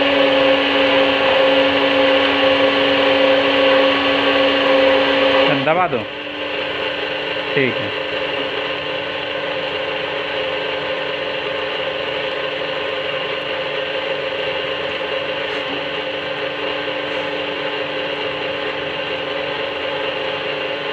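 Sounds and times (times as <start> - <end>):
hydraulic power unit whirring: 0.0 - 20.9.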